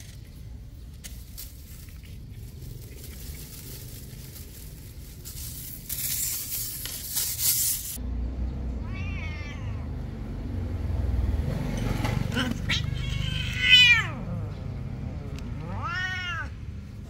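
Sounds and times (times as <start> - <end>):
cat meowing: 8.8 - 10.0, 12.3 - 14.4, 15.6 - 16.6.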